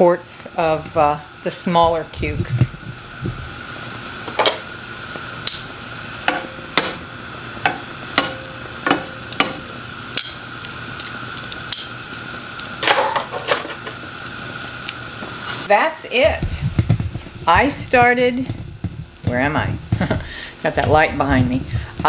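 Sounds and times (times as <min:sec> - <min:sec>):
food frying in oil: 0:00.0 - 0:22.0
tongs clicking on pan: 0:05.4 - 0:07.0, 0:07.6 - 0:10.4.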